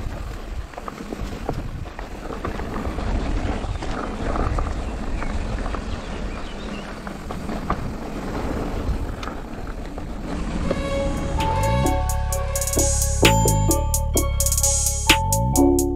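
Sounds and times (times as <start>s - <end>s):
bike tyres rumbling on dirt: 0.0s - 11.6s
wind buffeting microphone: 0.0s - 11.6s
music: 10.7s - 15.9s.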